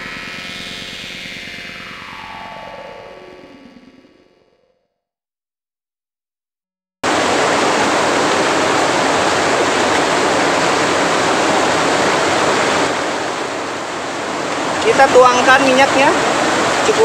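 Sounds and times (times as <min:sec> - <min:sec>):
small waterfall rushing: 0:07.0 - 0:17.0.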